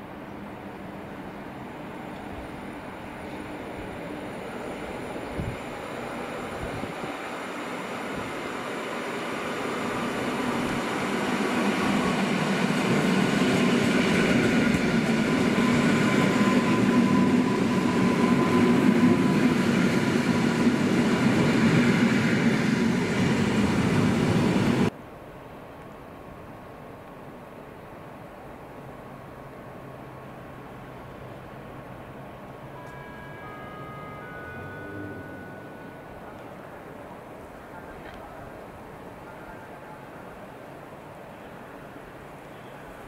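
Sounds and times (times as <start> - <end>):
train passing: 0.0 - 25.0, 27.9 - 43.0
faint thin tone: 32.5 - 38.4.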